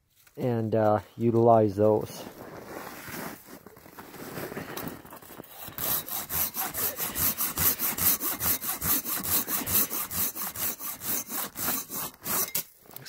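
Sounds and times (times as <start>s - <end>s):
handsaw cutting wood: 5.2s - 12.7s
saw handling: 5.4s - 13.0s.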